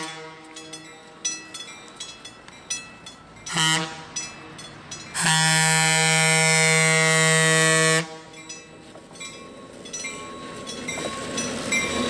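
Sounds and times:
locomotive air horn blasts: 0:00.0 - 0:00.8, 0:03.5 - 0:04.2, 0:05.2 - 0:08.4.

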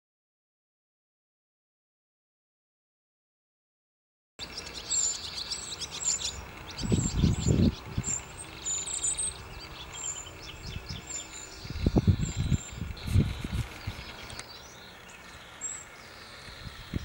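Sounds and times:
small birds chirping: 0:04.4 - 0:17.0
low rumbling: 0:06.1 - 0:17.0.

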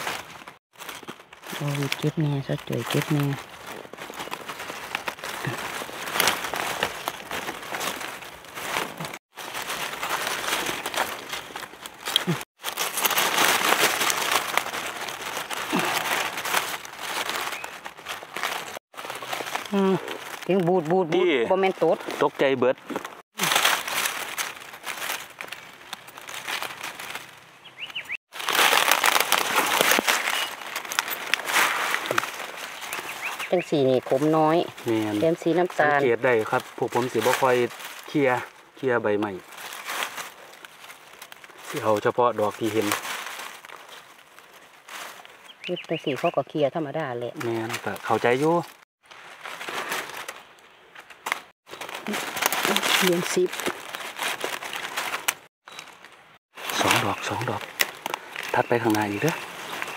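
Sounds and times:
dry leaves crackling and rustling: 0:00.0 - 0:59.9
faint bird chirp: 0:27.6 - 0:28.2, 0:30.3 - 0:30.6, 0:32.7 - 0:33.8, 0:45.4 - 0:46.5, 0:55.7 - 0:56.0.

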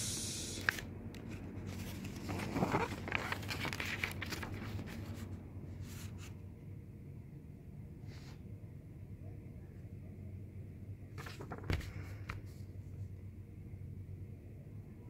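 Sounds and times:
paper pages rustling: 0:00.6 - 0:06.4, 0:11.2 - 0:12.7.

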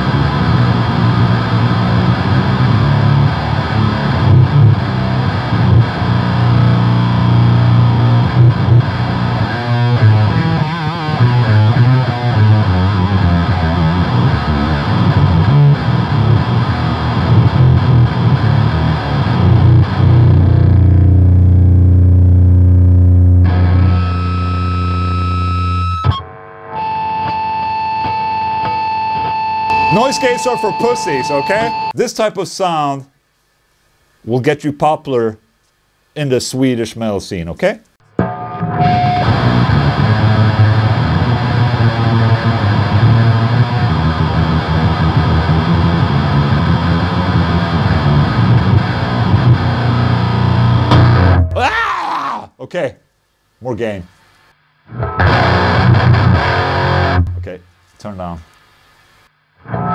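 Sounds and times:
distorted electric guitar chords: 0:00.0 - 0:32.0, 0:38.0 - 0:51.8, 0:54.6 - 0:57.6, 0:59.5 - 0:59.9
steady high whine: 0:00.0 - 0:34.4, 0:38.0 - 0:51.8
amp hum and buzz: 0:00.0 - 0:51.9, 0:52.7 - 0:59.9
guitar strings muted with a click: 0:50.9 - 0:51.6.

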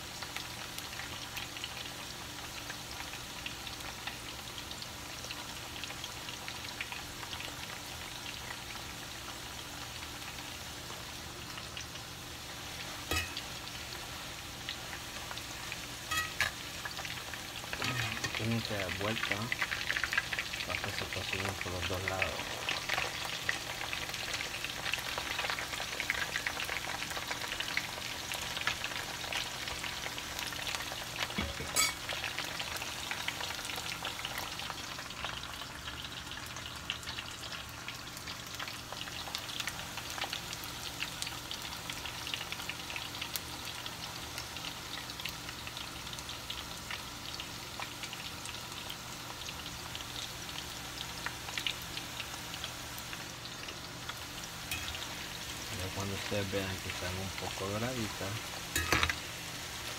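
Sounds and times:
deep-frying sizzle with pops: 0:00.0 - 0:59.9
utensil stirring in skillet: 0:12.8 - 0:14.1, 0:14.9 - 0:21.0, 0:54.1 - 0:59.9.

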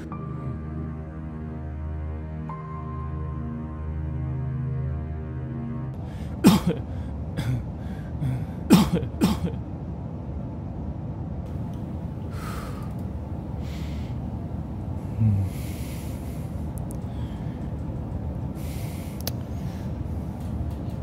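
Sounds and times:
low background rumble: 0:00.0 - 0:21.0
man breathing heavily: 0:06.0 - 0:08.7, 0:12.2 - 0:14.4, 0:15.0 - 0:20.4
man grunting: 0:15.2 - 0:15.6.

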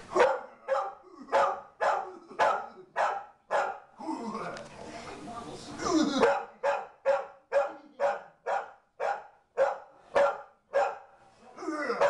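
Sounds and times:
dog barking: 0:00.1 - 0:03.9, 0:06.2 - 0:11.2.

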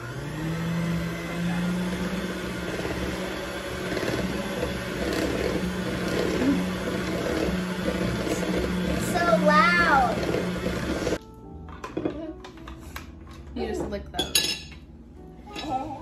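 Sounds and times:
electric hand mixer running: 0:00.0 - 0:11.2.

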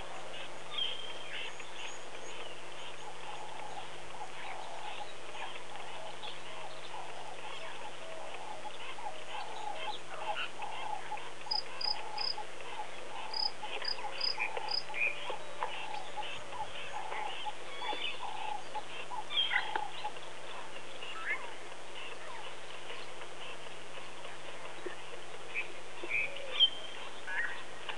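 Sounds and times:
bird chirps: 0:08.6 - 0:20.2.

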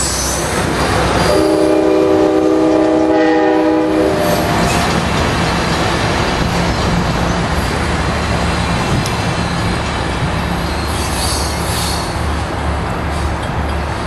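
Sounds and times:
train wheel squeal: 0:00.0 - 0:01.9, 0:09.3 - 0:12.4
train cars rumbling over rails: 0:00.0 - 0:14.0.

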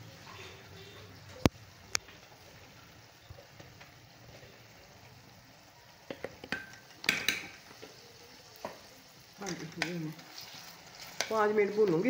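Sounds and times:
faint sizzle: 0:00.0 - 0:12.0
metal spoon stirring in pan: 0:06.1 - 0:12.0.

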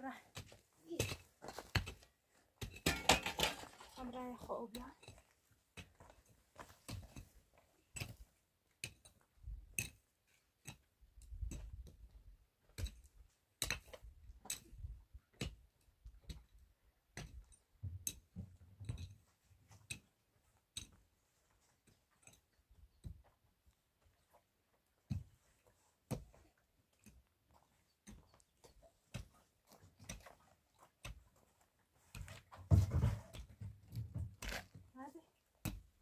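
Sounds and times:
footsteps on stony ground: 0:00.1 - 0:08.3, 0:19.3 - 0:36.0.

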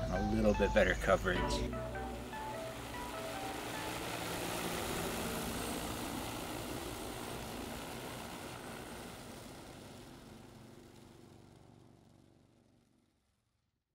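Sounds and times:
drone propellers whirring: 0:00.0 - 0:10.2.

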